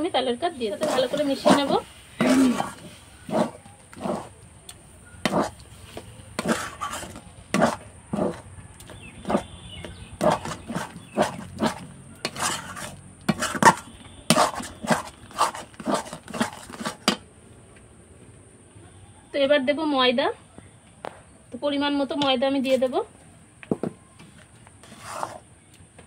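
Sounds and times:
spatula scraping a pan: 0.6 - 4.3, 5.2 - 8.4, 9.2 - 17.2, 24.3 - 25.5.

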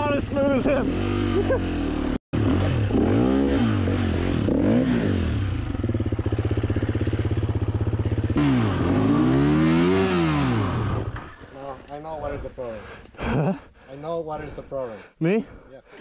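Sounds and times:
dirt bike engine revving: 0.0 - 11.5.

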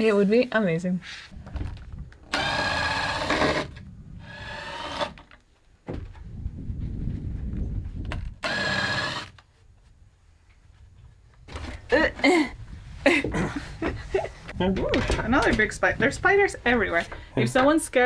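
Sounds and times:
low rumbling handling noise: 1.3 - 8.5, 9.6 - 17.8
cordless drill whining: 2.2 - 5.3, 8.4 - 9.4.

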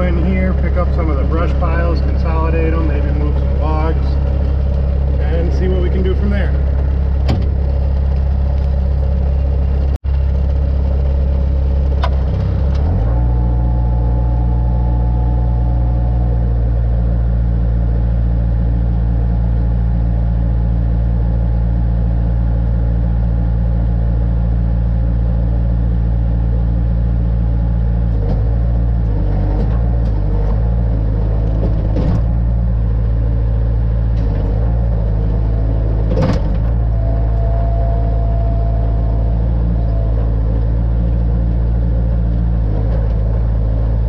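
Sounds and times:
loader engine running: 0.0 - 44.0.

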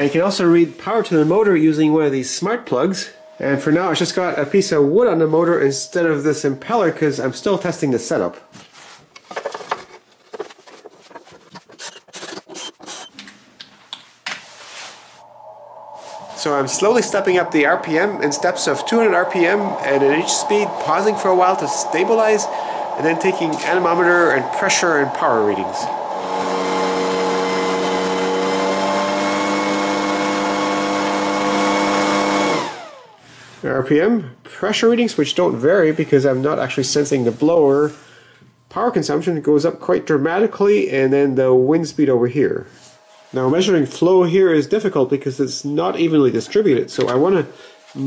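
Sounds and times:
servo motor whine: 15.3 - 33.2.

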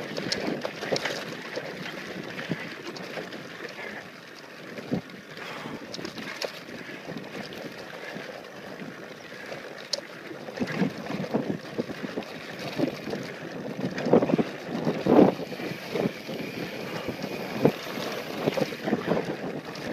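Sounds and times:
bike rattling over bumps: 10.6 - 19.9
wind rushing over microphone: 10.6 - 19.9.

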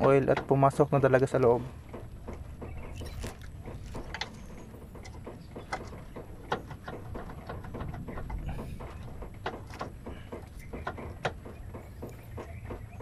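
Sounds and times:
low steady rumble: 0.0 - 13.0
small clicks and scrapes of hands: 2.3 - 12.8.

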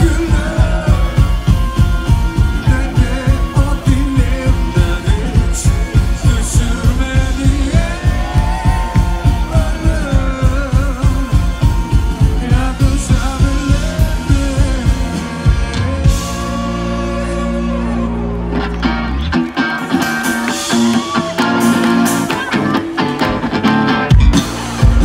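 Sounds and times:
man singing: 0.0 - 18.8
rock band playing: 0.0 - 25.0.

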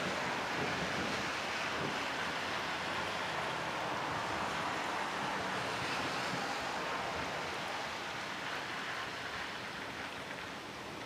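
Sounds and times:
steady rain falling: 0.0 - 11.0.

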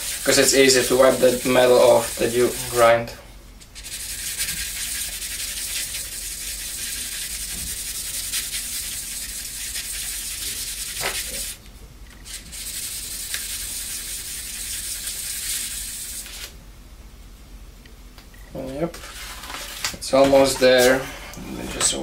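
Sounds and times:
knife scraping on sandpaper: 0.0 - 2.9, 3.8 - 11.6, 12.2 - 16.5, 18.9 - 21.3.

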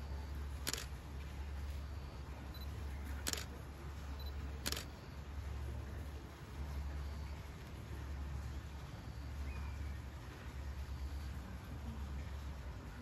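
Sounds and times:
steady low hum: 0.0 - 13.0
camera shutter clicks: 0.6 - 1.0, 3.2 - 3.5, 4.6 - 4.9.

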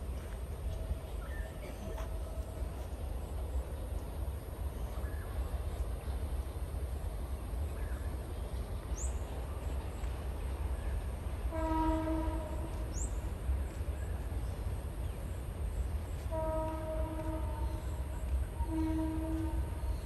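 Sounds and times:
train horn: 11.4 - 13.2, 16.2 - 20.0.

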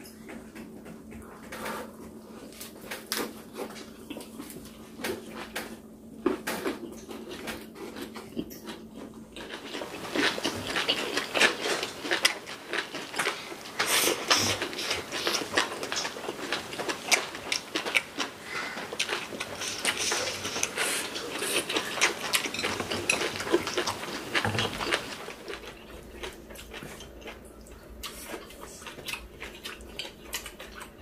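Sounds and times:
close chewing with wet mouth noises: 0.3 - 31.0
utensils clicking against dishes: 19.6 - 25.0.

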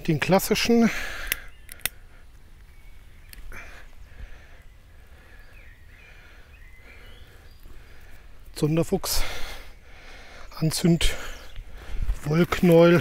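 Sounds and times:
faint bird chirps: 0.5 - 8.9.

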